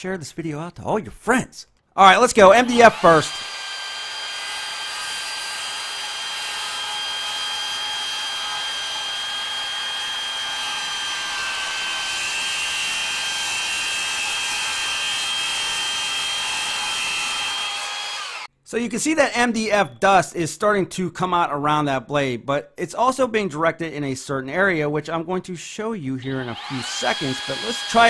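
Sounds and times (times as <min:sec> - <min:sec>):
circular saw whining: 0:02.1 - 0:18.5, 0:26.3 - 0:28.0
saw blade cutting board: 0:02.2 - 0:18.5, 0:26.4 - 0:28.0.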